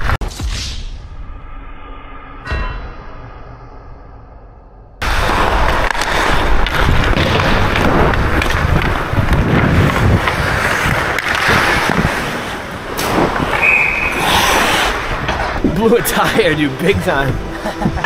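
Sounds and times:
wind rushing over microphone: 0:05.0 - 0:15.8
ice skates scraping: 0:05.0 - 0:18.0.

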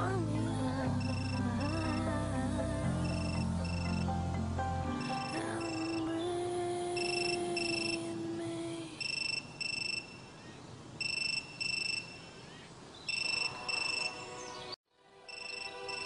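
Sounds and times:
low held tone: 0:00.0 - 0:08.2
mobile phone double beep ringing: 0:03.0 - 0:04.1, 0:07.0 - 0:08.0, 0:09.0 - 0:10.3, 0:11.0 - 0:12.3, 0:13.1 - 0:14.2, 0:15.3 - 0:16.0.

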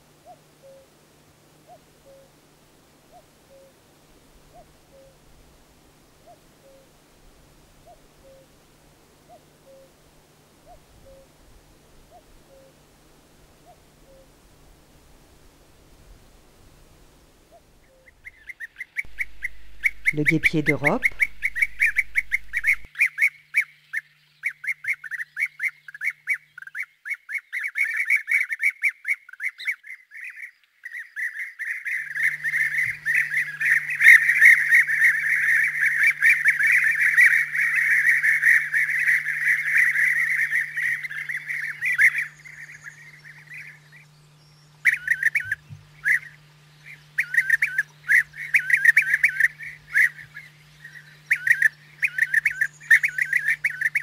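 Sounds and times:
birds calling with rolling notes: 0:17.5 - 0:54.0.

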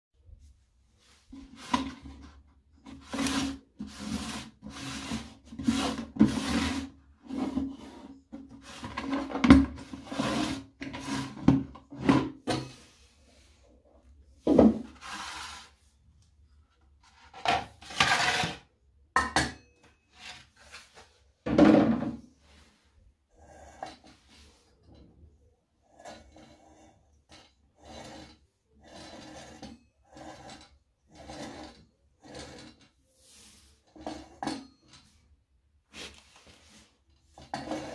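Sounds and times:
scrapes and knocks: 0:01.0 - 0:13.6, 0:14.4 - 0:15.8, 0:16.8 - 0:18.7, 0:19.9 - 0:22.8, 0:26.0 - 0:37.9
plastic case rubbing and scraping: 0:01.3 - 0:12.4.

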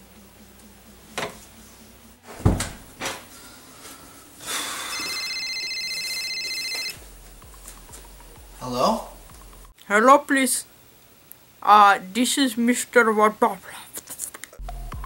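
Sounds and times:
thumps: 0:02.3 - 0:03.3
phone ringtone trilling: 0:04.6 - 0:07.0.

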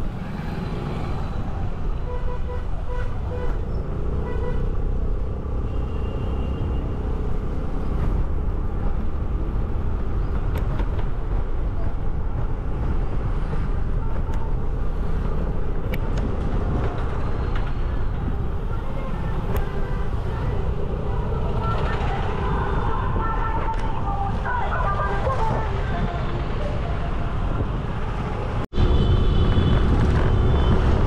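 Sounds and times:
traffic: 0:00.0 - 0:31.0
wind and road rumble: 0:00.0 - 0:31.0.

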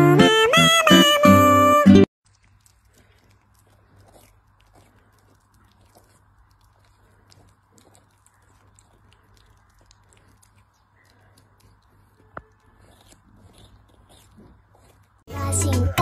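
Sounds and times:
kitten chewing crunching: 0:02.2 - 0:15.9.

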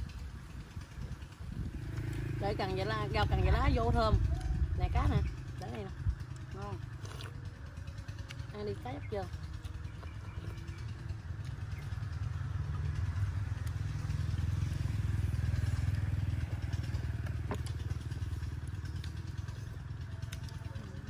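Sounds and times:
motorbike passing: 0:00.0 - 0:21.0.

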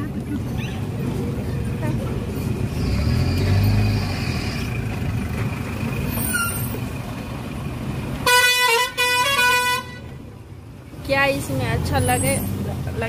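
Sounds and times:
low rumble of vehicles: 0:00.0 - 0:13.0
loud vehicle horn blast: 0:08.2 - 0:10.1.

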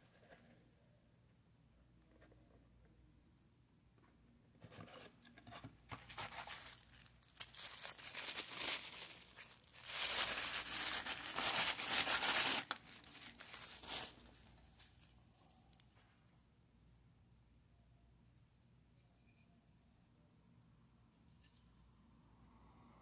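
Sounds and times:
wrapping crinkling and tearing: 0:06.1 - 0:15.1.

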